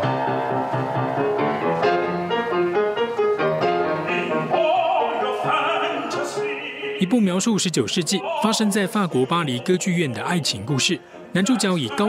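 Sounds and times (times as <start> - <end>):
grand piano chords: 0.0 - 12.0
operatic singing voice: 4.0 - 12.0.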